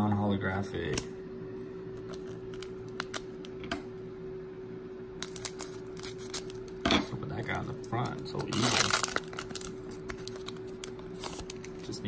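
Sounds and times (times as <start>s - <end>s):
steady hum: 0.0s - 12.0s
foil pack crinkling: 5.2s - 6.8s, 7.8s - 12.0s.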